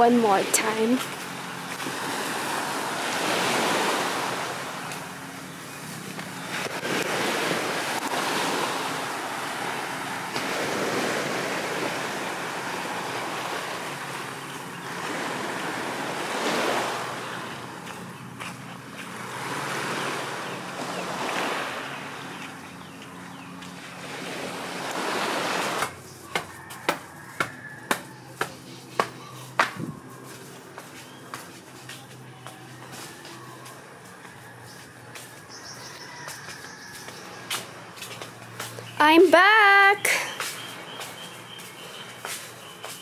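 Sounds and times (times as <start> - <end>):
small waves washing onto sand: 0.0 - 22.6, 23.6 - 26.0
wind on microphone: 29.7 - 30.1.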